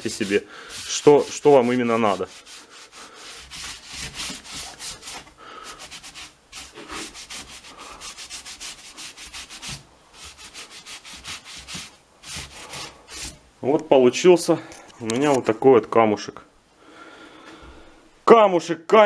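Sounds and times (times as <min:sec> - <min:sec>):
rubbing strokes on stone panel: 0:00.0 - 0:13.4.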